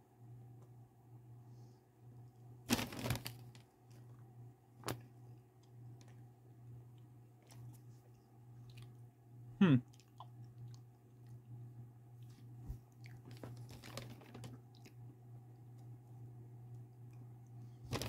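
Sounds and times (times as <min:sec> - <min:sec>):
steady low hum: 0:00.0 - 0:18.0
person chewing: 0:07.4 - 0:09.0, 0:09.9 - 0:11.4.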